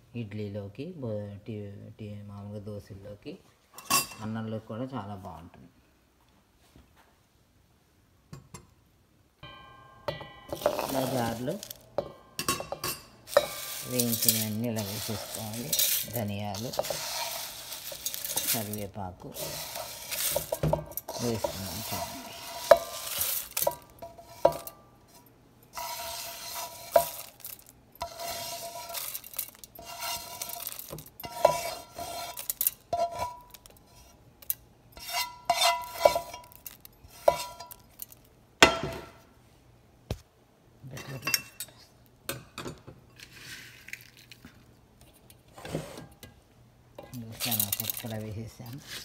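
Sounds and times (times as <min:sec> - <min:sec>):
sharp clinks and jar ringing: 0:09.4 - 0:16.7
seeds rattling in steel jar: 0:10.5 - 0:11.9, 0:12.8 - 0:24.8, 0:25.7 - 0:38.3, 0:43.2 - 0:44.7, 0:47.0 - 0:49.0.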